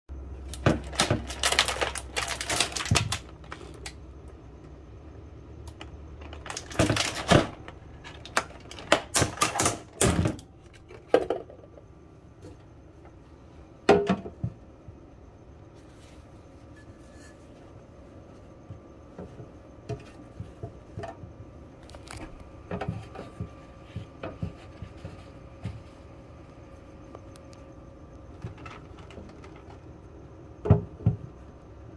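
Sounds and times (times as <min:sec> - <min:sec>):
plastic egg carton crackling: 0:00.4 - 0:04.0, 0:05.7 - 0:10.0.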